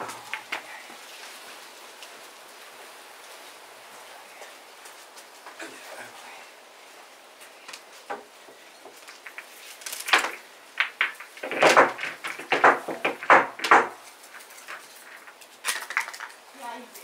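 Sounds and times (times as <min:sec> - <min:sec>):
pool balls clacking: 0:00.0 - 0:00.7, 0:08.1 - 0:16.3.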